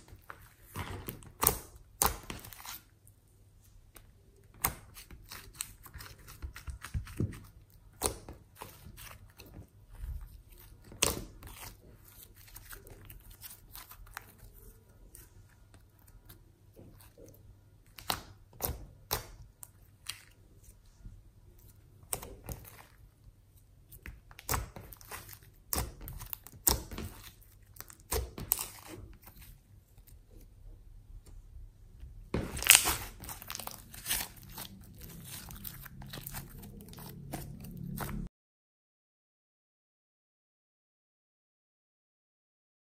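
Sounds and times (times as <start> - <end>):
hands squishing sticky slime: 0.0 - 30.6, 32.1 - 38.3
crackling slime pops: 32.4 - 34.6.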